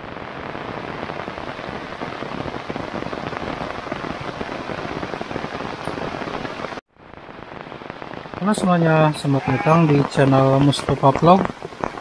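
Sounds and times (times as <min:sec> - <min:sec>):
heavy rain falling: 0:00.0 - 0:12.0.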